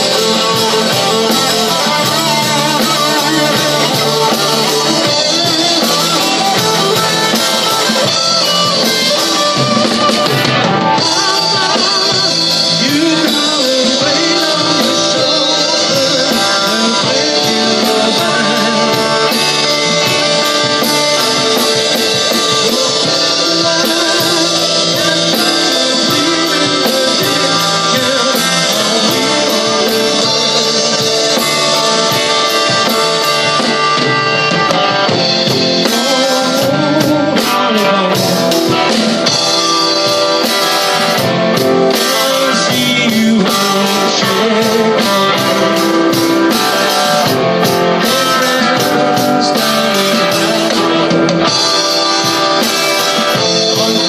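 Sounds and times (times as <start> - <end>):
bass guitar: 0.0 - 54.0
drum kit: 0.0 - 54.0
electric guitars: 0.0 - 54.0
man singing: 0.0 - 54.0.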